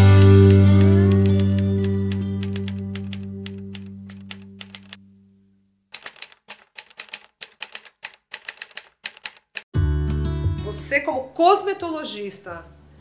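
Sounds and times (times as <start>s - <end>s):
low music chord: 0.0s - 4.1s
typewriter keystrokes: 0.2s - 5.0s, 5.9s - 9.7s.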